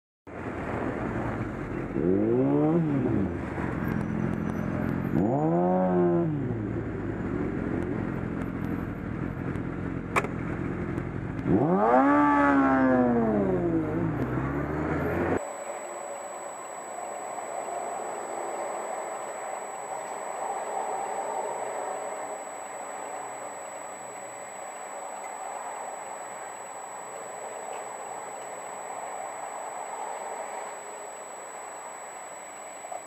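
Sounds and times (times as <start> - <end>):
traffic noise: 0.3 - 33.0
wind: 0.3 - 33.0
motorcycle engine revving: 0.4 - 15.4
sharp click: 10.1 - 10.4.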